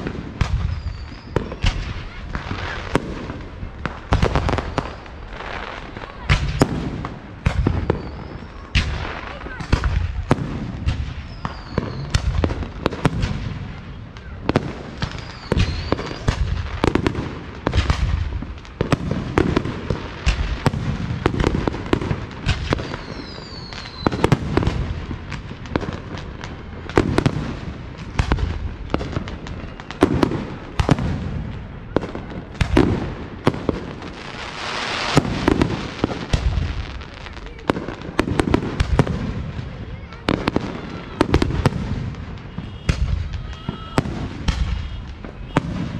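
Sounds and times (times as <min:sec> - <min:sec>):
falling firework whistles: 0:00.0 - 0:03.0, 0:04.2 - 0:05.4, 0:07.5 - 0:10.1, 0:10.8 - 0:12.6, 0:14.2 - 0:17.0, 0:22.4 - 0:24.9, 0:28.3 - 0:31.1, 0:40.2 - 0:45.9
firework shells booming: 0:00.0 - 0:45.9
hissing firework crackle: 0:00.0 - 0:45.9.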